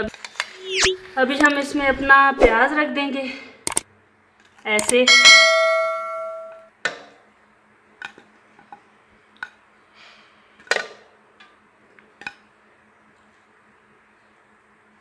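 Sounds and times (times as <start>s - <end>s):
metal pot ringing: 5.1s - 6.6s.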